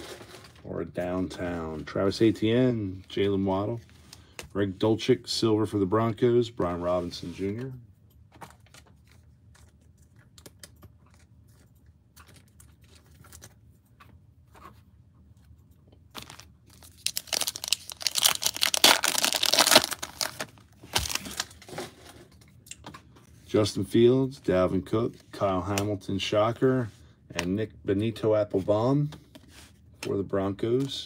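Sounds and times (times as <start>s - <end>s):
plastic wrapper tearing and crinkling: 16.1s - 21.8s.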